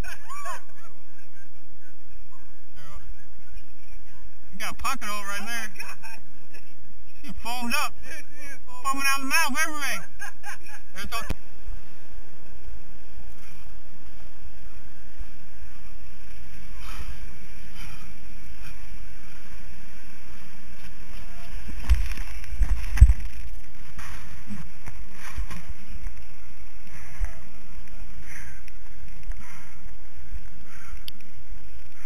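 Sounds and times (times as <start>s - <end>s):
wind on microphone: 11.4s - 32.0s
camera handling rumble: 21.8s - 26.3s.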